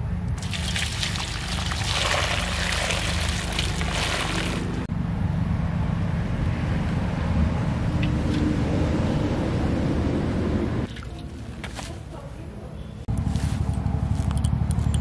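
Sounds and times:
water splashing into metal basin: 0.4s - 4.9s.

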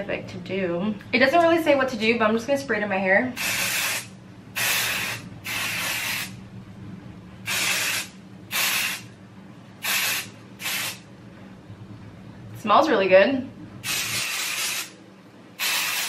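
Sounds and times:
spray can hissing: 3.4s - 6.3s, 7.5s - 9.0s, 9.8s - 11.0s, 13.8s - 15.0s, 15.6s - 16.0s.

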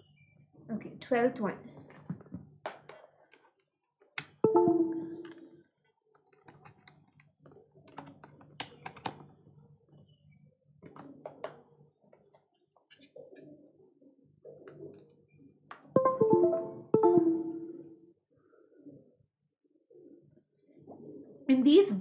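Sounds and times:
keyboard typing: 4.5s - 5.3s, 16.0s - 17.8s.

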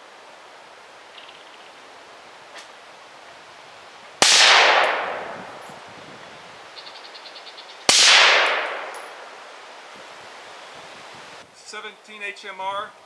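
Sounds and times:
gunshot echo: 4.2s - 5.6s, 7.9s - 9.2s
suppressed rifle shots: 4.2s - 5.6s, 7.9s - 9.2s.

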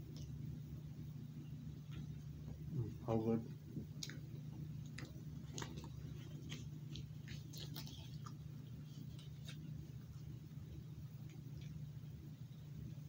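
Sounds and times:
steady low hum: 0.0s - 13.0s
paper wrapper crinkling: 4.8s - 10.3s.

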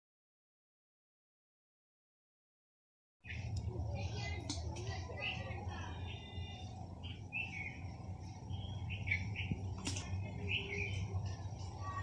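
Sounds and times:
low background noise: 3.2s - 12.0s
small birds chirping: 3.2s - 12.0s.

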